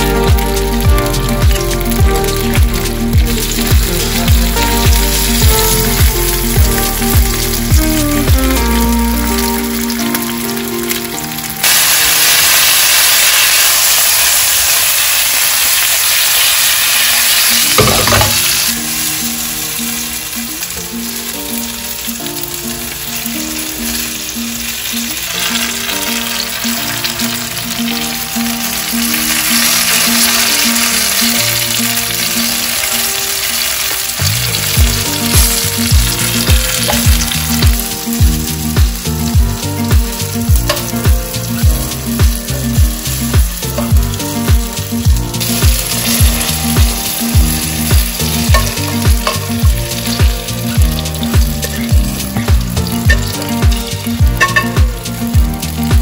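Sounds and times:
background music with deep beat: 0.0s - 11.6s, 34.2s - 56.0s
onions and peppers sizzling in pan: 0.0s - 56.0s.

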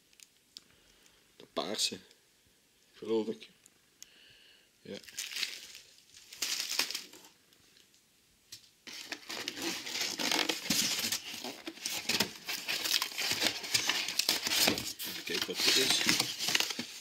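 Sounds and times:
cardboard and plastic rustling: 5.1s - 7.4s, 8.9s - 17.0s.

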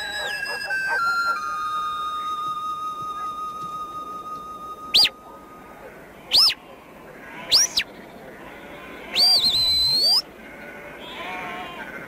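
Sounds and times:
high whistled commands: 0.0s - 6.6s, 9.2s - 10.2s.

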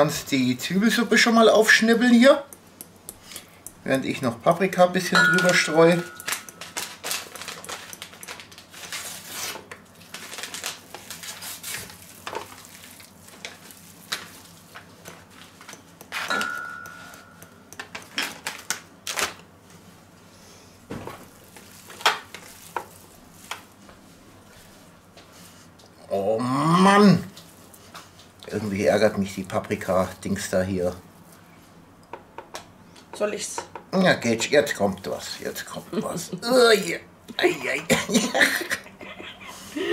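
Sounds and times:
hands mixing meat in metal tray: 0.8s - 18.5s
steady high tone: 5.1s - 6.6s, 16.3s - 17.7s.

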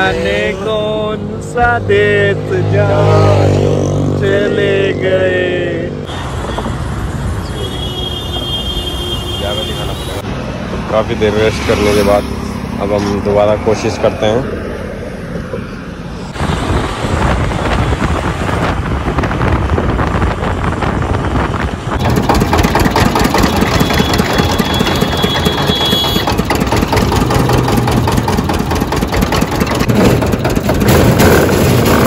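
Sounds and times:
steady mechanical noise: 21.9s - 32.0s
juice crusher rollers turning: 22.0s - 30.9s.

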